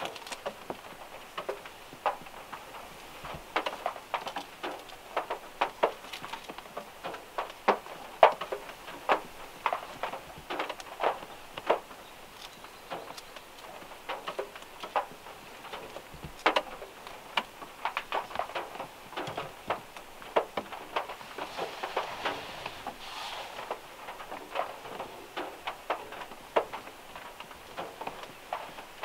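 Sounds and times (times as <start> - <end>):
rain ticking on a car roof: 0.0 - 29.0.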